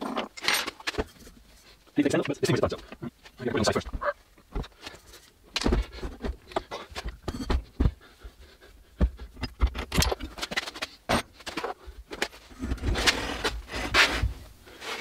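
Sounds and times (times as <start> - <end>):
metal parts scraping: 0.0 - 1.4.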